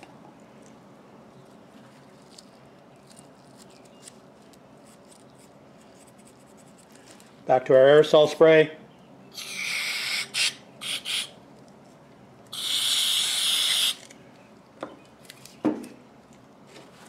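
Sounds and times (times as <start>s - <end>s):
aerosol spray can hissing: 9.4s - 11.3s, 12.6s - 14.0s.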